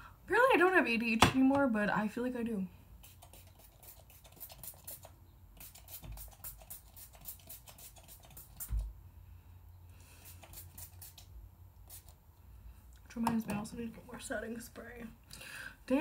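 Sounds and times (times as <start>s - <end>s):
spray bottle spritzing: 3.0s - 8.8s, 10.2s - 11.3s, 11.9s - 12.2s.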